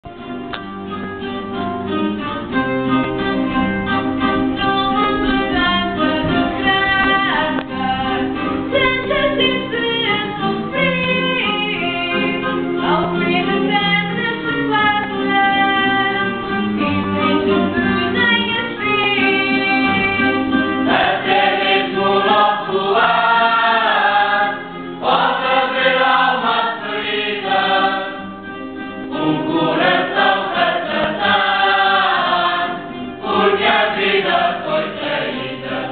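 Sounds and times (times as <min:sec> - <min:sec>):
plucked string instruments: 0:00.1 - 0:35.9
choir singing: 0:18.6 - 0:35.9.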